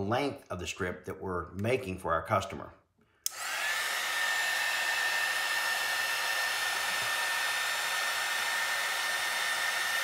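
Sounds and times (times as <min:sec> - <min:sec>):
heat gun blowing with high whine: 0:03.2 - 0:10.0.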